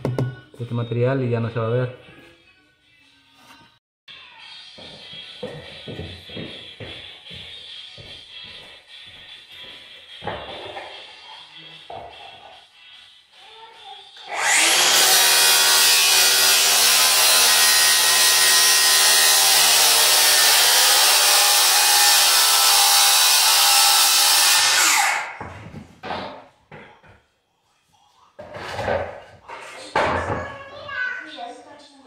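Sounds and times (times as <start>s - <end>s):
handheld power tool running: 14.2s - 25.4s.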